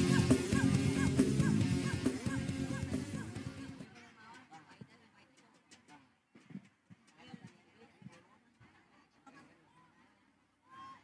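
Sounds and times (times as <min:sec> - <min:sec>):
distant arena crowd voices: 0:00.0 - 0:06.4.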